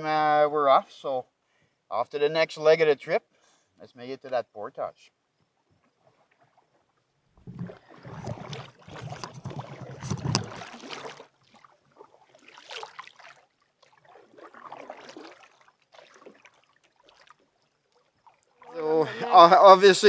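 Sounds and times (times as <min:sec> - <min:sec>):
paddle swishing in water: 0:05.8 - 0:19.6.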